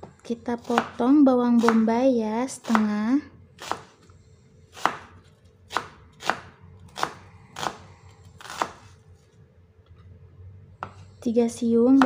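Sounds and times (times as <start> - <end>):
knife cutting on wooden board: 3.6 - 4.0, 4.7 - 9.0.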